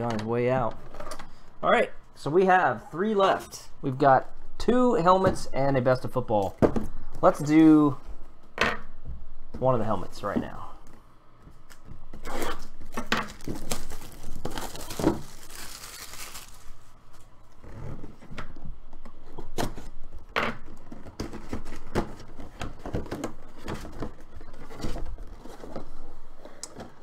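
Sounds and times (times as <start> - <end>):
cardboard tearing: 12.2 - 16.6.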